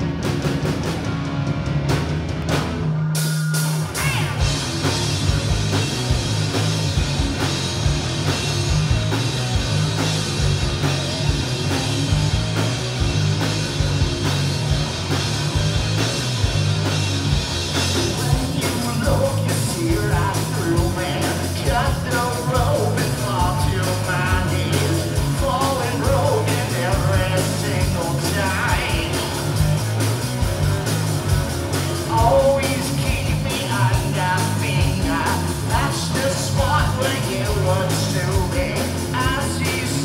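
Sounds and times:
rock band playing: 0:00.0 - 0:40.0
person singing: 0:18.1 - 0:29.4, 0:32.1 - 0:40.0.

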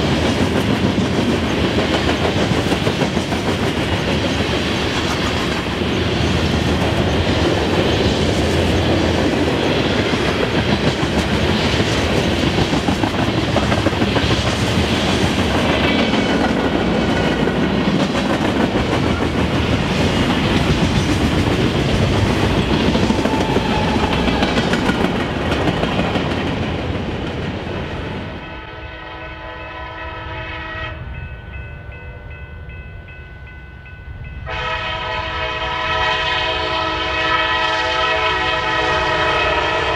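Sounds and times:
train wheels clacking over rail joints: 0:00.0 - 0:27.6
diesel locomotive horn: 0:23.2 - 0:24.6, 0:28.2 - 0:31.2, 0:34.4 - 0:39.9.

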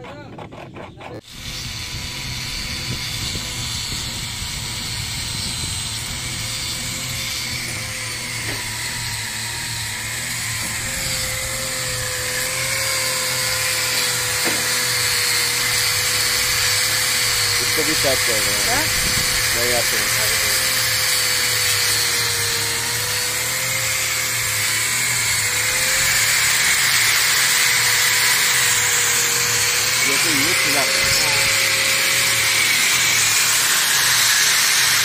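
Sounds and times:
scraping strokes: 0:00.0 - 0:01.8
angle grinder grinding plastic: 0:00.0 - 0:35.0.

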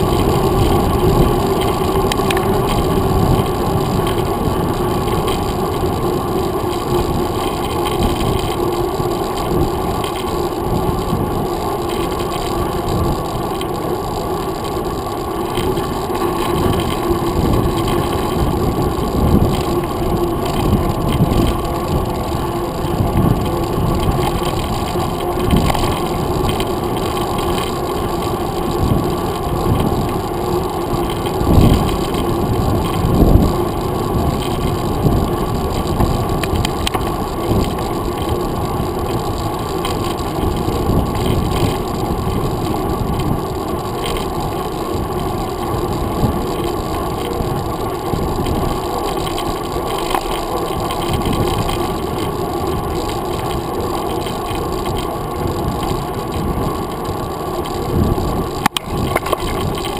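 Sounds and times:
wind and road rumble: 0:00.0 - 0:59.9.

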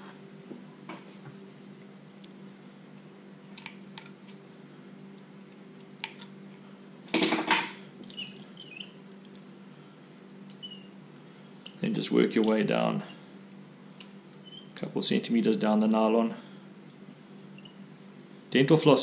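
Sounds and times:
steady low hum: 0:00.0 - 0:19.0
short squeaks: 0:08.1 - 0:09.0, 0:10.6 - 0:11.0, 0:14.4 - 0:14.8, 0:17.5 - 0:17.8.

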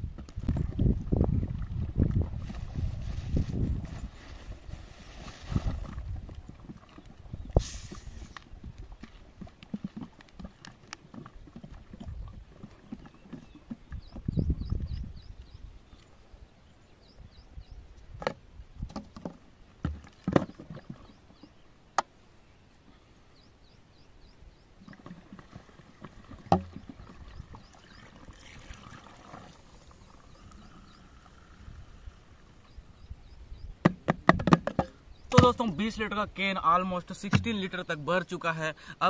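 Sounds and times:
cola glugging and fizzing: 0:25.0 - 0:31.0
plastic bottles clicking and knocking: 0:33.9 - 0:35.6.

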